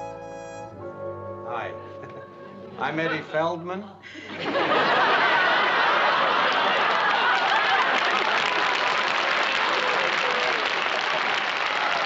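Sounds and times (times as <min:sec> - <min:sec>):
audience laughing: 0:01.9 - 0:03.4, 0:04.1 - 0:08.9
audience clapping: 0:05.0 - 0:12.0.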